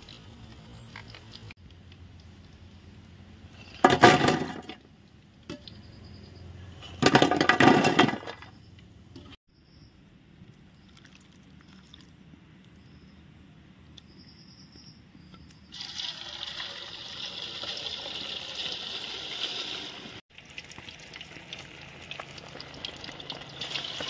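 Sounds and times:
hot oil sizzling and crackling: 15.7s - 24.0s.

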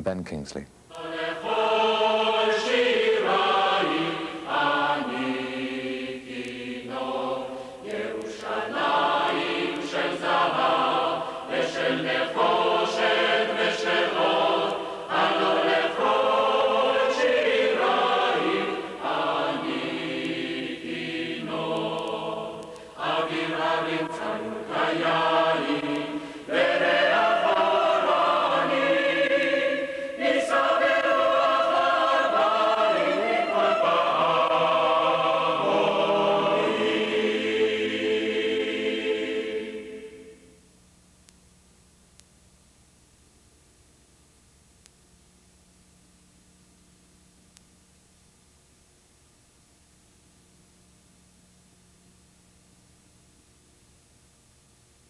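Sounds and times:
choir singing long held notes: 0.9s - 40.6s.

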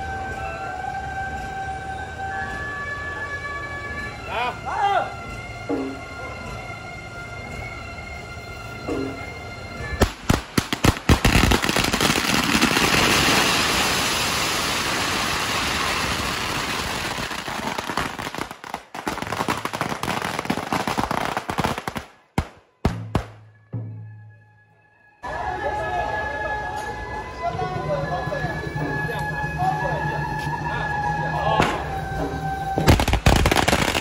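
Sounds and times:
firecrackers crackling: 10.0s - 23.4s, 32.7s - 34.0s
loud firecracker bangs: 10.0s - 23.5s, 32.8s - 34.0s.

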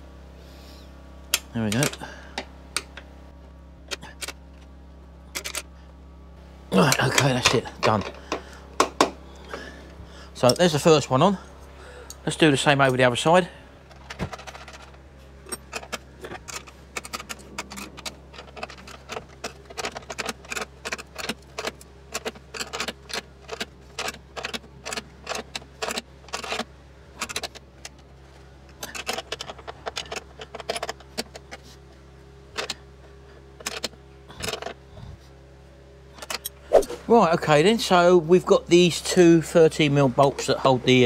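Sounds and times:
steady low hum: 0.0s - 41.0s
metal spanner clicking against bolts: 1.3s - 2.1s, 5.3s - 5.7s, 14.0s - 28.0s.

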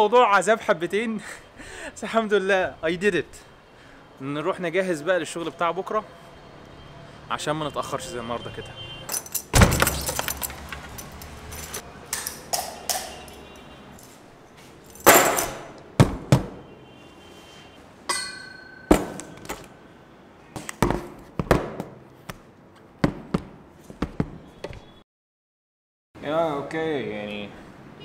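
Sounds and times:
keys clinking: 9.1s - 15.8s.

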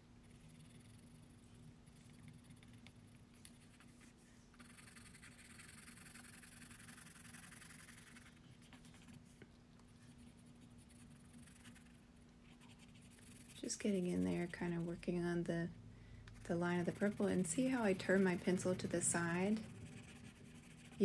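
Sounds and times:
low steady hum: 0.0s - 21.0s
pencil scratching on paper: 0.2s - 9.2s, 10.0s - 15.3s, 16.4s - 21.0s.

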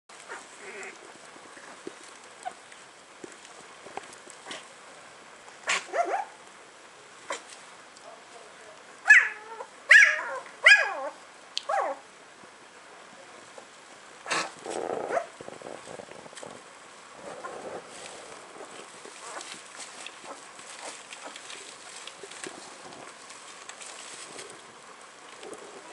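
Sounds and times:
puppy grunting cry: 0.3s - 1.0s, 14.3s - 16.6s, 17.2s - 19.5s.

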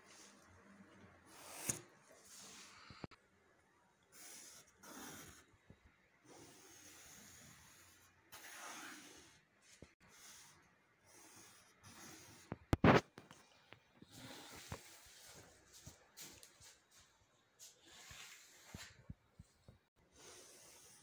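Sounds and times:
pencil scratching along straightedge: 1.3s - 3.1s, 4.1s - 5.5s, 6.2s - 13.0s.

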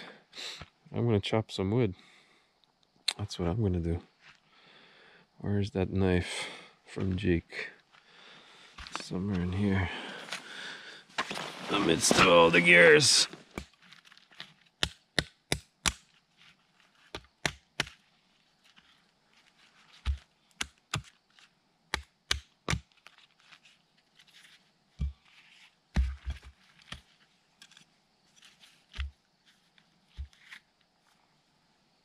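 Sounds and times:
logs thudding on ground: 11.1s - 16.0s, 25.0s - 25.2s, 25.9s - 27.0s.

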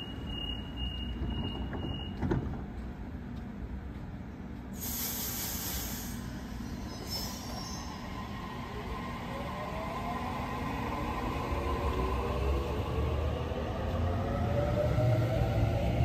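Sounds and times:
train air hiss: 4.7s - 8.1s.

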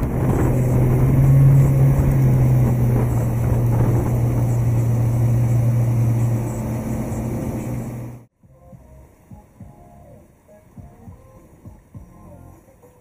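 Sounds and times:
water rushing in wake: 0.0s - 8.3s
outboard engine drone: 0.0s - 12.6s.

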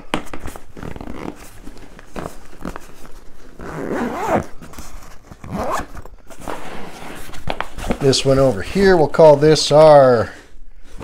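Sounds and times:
rustling and knocks of gear: 0.0s - 8.8s
zipper being pulled: 0.7s - 1.5s, 3.5s - 4.6s, 5.2s - 7.4s.

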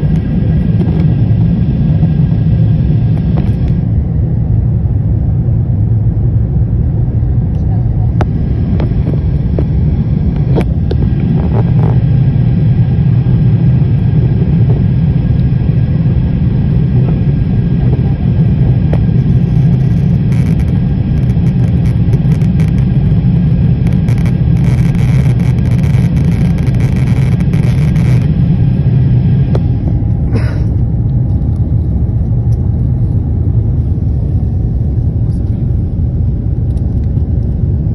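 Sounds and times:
jet engine rumble: 0.0s - 37.9s
faint steady tones: 7.0s - 30.2s.

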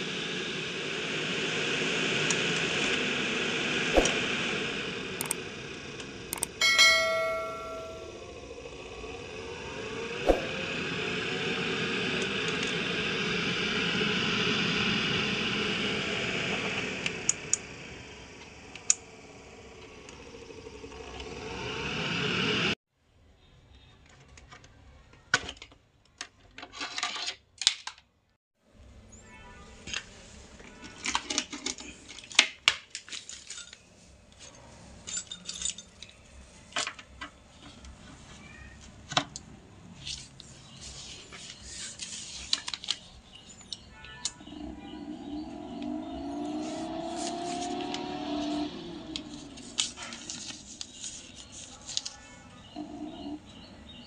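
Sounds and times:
fan air rushing: 0.0s - 22.7s.

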